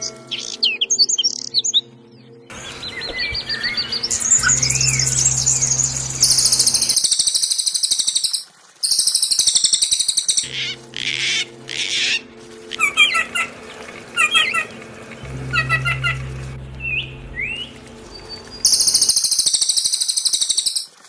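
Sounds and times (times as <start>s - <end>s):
songbirds trilling: 0.0s - 20.9s
harsh raspy bird calls: 6.2s - 16.3s
low steady hum: 10.4s - 19.1s.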